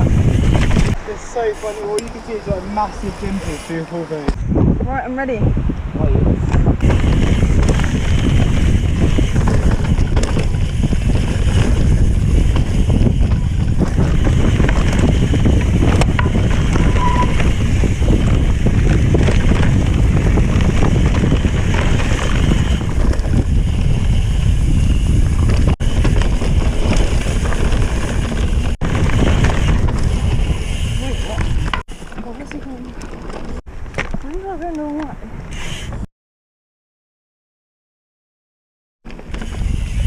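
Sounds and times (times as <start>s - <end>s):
bike tyre and frame rattle: 0.0s - 3.8s, 6.4s - 36.1s, 39.0s - 40.0s
wind buffeting microphone: 0.0s - 36.1s, 39.2s - 40.0s.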